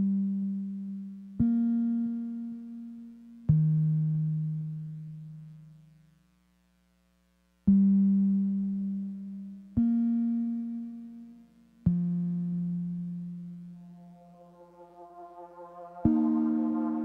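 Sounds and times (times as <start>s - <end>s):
low keyboard notes: 11.9s - 17.0s.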